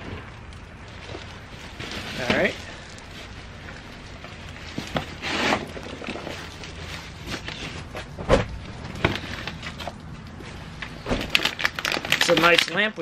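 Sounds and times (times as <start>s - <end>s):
rummaging in cardboard box: 1.0s - 8.2s, 11.2s - 12.7s
thump: 8.2s - 8.5s.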